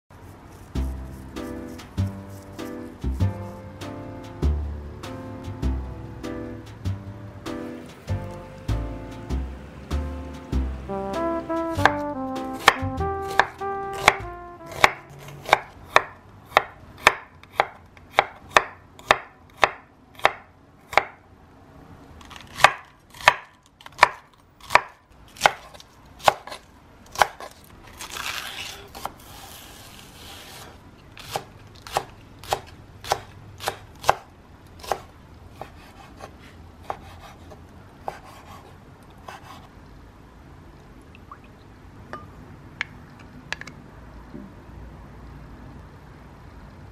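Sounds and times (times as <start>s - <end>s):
knife chopping on wooden board: 11.7s - 21.2s, 22.4s - 27.5s, 31.2s - 38.7s.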